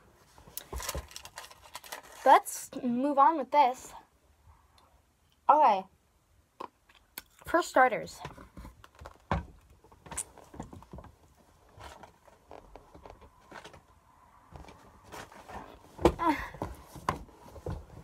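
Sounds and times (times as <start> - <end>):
bumps and rustling handling: 0.1 - 2.5, 8.1 - 18.0.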